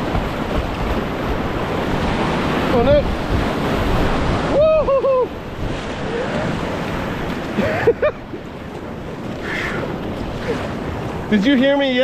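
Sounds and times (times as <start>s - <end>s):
rushing whitewater: 0.0s - 12.0s
person yelling: 4.5s - 5.3s.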